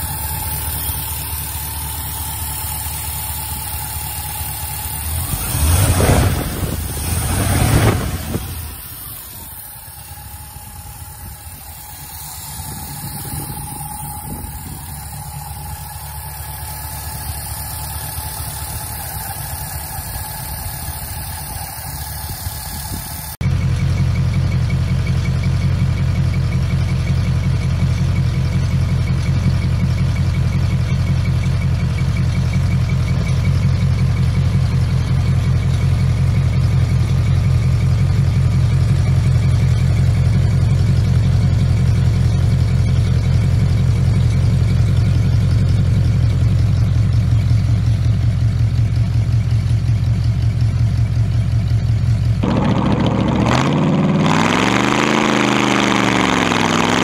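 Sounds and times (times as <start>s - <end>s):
car engine revving: 0.0s - 23.4s, 52.3s - 57.0s
car engine idling: 0.0s - 57.0s.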